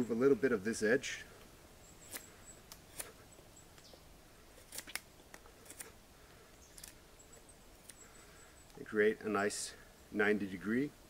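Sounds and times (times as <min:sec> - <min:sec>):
knife scraping wood: 0:02.0 - 0:03.2, 0:04.5 - 0:06.0.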